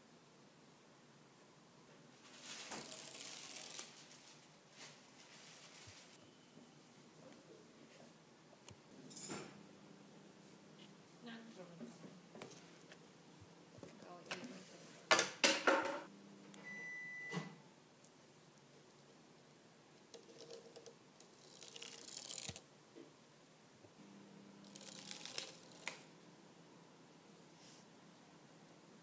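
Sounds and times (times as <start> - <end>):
plastic toy rustling and scraping: 2.2 - 6.2
short faint beep: 16.6 - 17.4.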